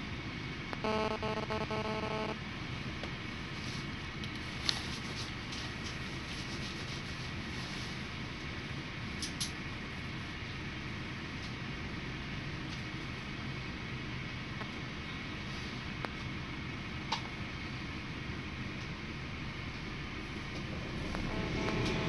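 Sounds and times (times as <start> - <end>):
pulsing electronic beep: 0.8 - 2.4, 21.3 - 22.0.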